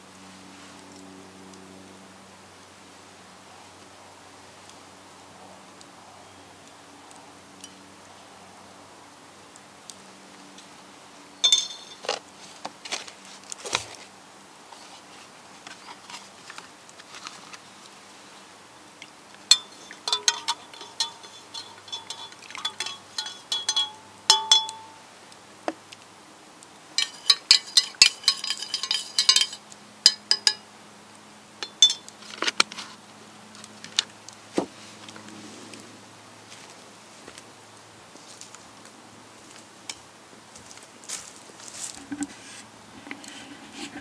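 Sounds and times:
teaspoon clinking against mugs: 11.4 - 12.0, 19.5 - 25.0, 27.0 - 30.6, 31.6 - 32.1.

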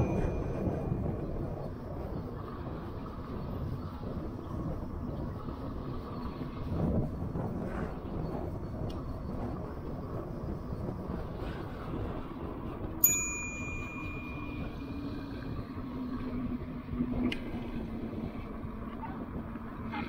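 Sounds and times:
bicycle bell ding: 0.0 - 1.0, 13.0 - 15.2
wind and tyre noise: 0.0 - 20.0.

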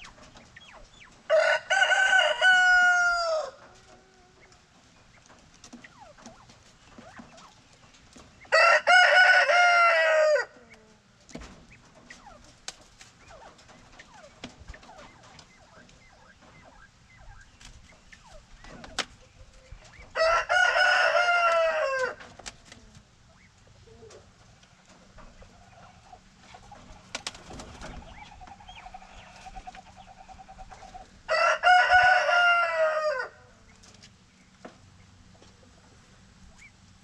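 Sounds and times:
rooster crowing: 1.3 - 3.7, 8.5 - 10.7, 20.1 - 22.2, 31.3 - 33.5.

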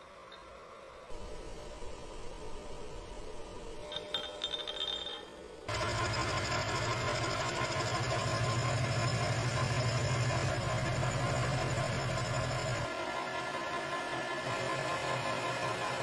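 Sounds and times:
end mill cutting steel: 5.7 - 16.0
milling machine humming: 5.7 - 16.0.

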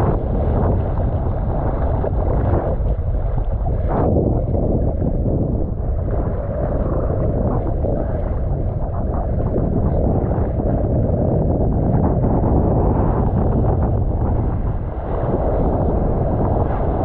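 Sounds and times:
sea water splashing: 0.0 - 11.2
wind buffeting microphone: 0.0 - 17.0.

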